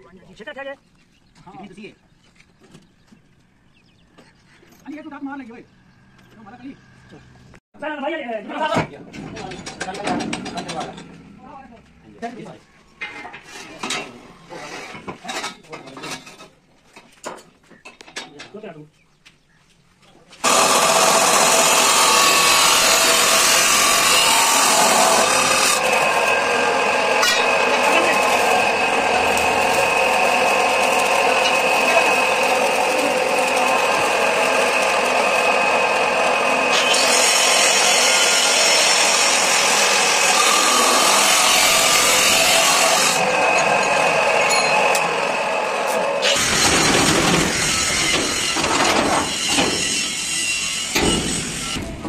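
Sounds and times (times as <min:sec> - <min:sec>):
power tool grinding metal: 0:20.4 - 0:52.0.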